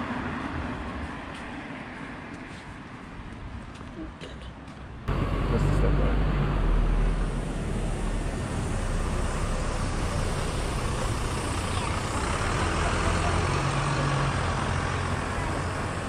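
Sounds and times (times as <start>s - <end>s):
street traffic noise: 0.0s - 16.0s
vehicle engine humming: 5.1s - 16.0s.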